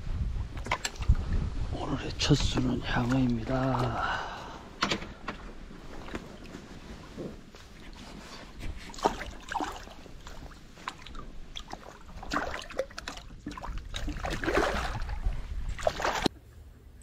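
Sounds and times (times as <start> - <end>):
fish thrashing and splashing: 7.7 - 16.3.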